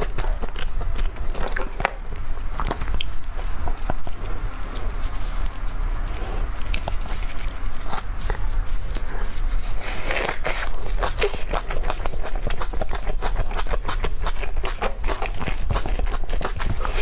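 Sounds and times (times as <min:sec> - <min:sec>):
chewing and mouth clicks: 0:00.0 - 0:17.0
steady low hum: 0:00.0 - 0:17.0
bite into food: 0:02.6 - 0:17.0.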